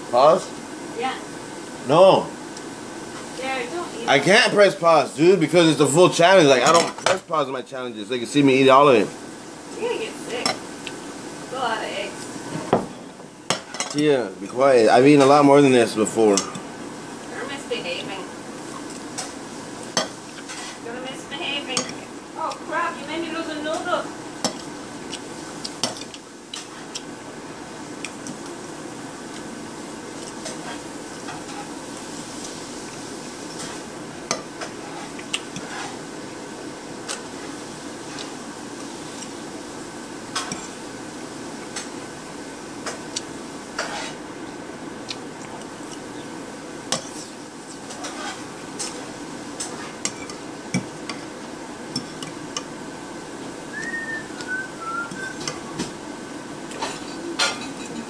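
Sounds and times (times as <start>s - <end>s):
steady background hiss: 0.0s - 58.0s
fork scraping ceramic plate: 34.7s - 36.0s, 43.8s - 44.2s, 47.0s - 48.5s
utensil clinking and scraping on plate: 46.9s - 49.0s.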